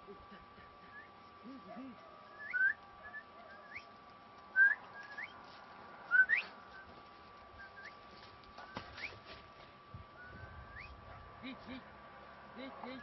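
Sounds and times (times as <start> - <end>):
rising whistled notes: 6.1 - 6.9, 10.2 - 11.0.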